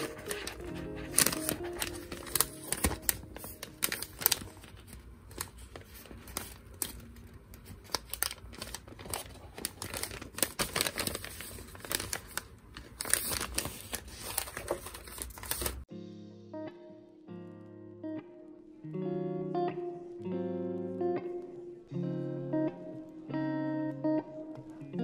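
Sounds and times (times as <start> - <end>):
paper crinkling and rustling: 0.0 - 15.9.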